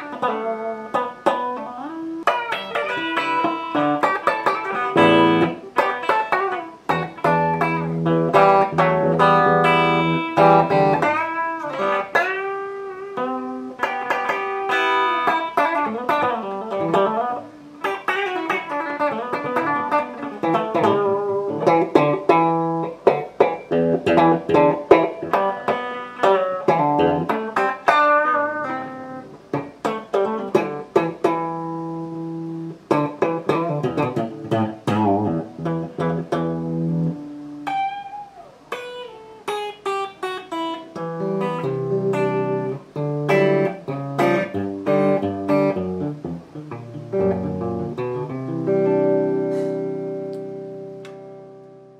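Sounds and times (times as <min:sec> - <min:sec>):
electric guitar playing: 0:00.0 - 0:51.9.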